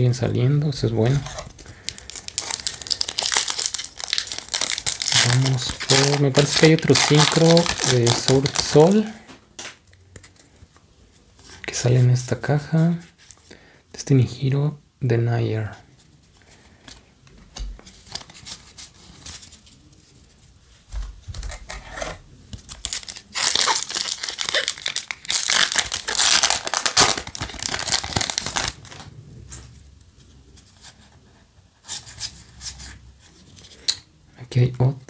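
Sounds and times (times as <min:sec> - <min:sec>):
trading cards rustling: 0:01.1 - 0:10.5, 0:21.4 - 0:29.1
foil wrapper crackling: 0:01.5 - 0:09.1, 0:22.7 - 0:29.1.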